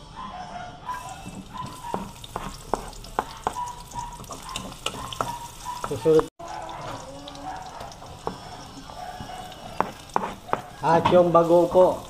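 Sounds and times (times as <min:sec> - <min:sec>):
spatula scraping a wok: 0:00.9 - 0:06.0, 0:08.0 - 0:11.0
garlic sizzling in hot oil: 0:00.9 - 0:12.0.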